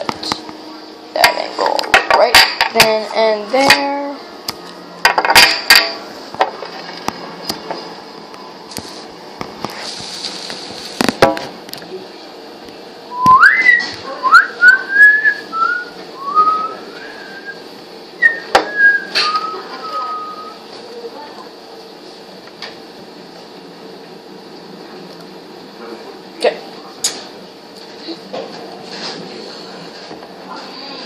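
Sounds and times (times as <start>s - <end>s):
person whistling a tune: 13.1s - 17.6s, 18.2s - 20.6s.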